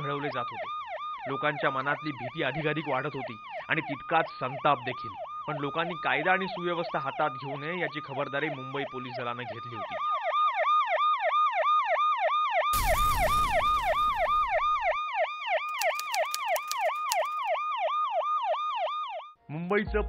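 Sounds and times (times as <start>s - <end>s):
siren yelping: 0.0s - 19.3s.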